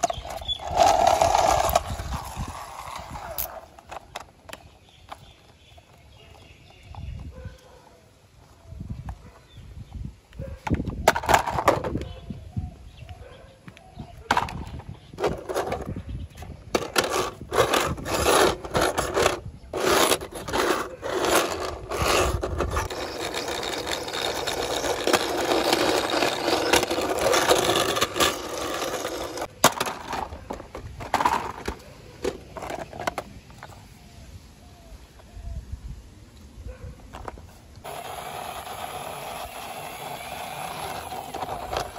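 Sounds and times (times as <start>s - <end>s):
toy truck wheels rolling on concrete: 0.0s - 7.7s, 10.8s - 12.1s, 14.3s - 33.8s, 37.1s - 41.9s.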